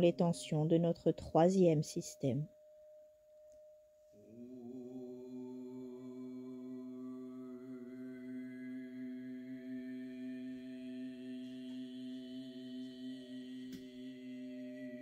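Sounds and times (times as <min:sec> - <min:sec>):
ambient drone music: 0:04.2 - 0:15.0.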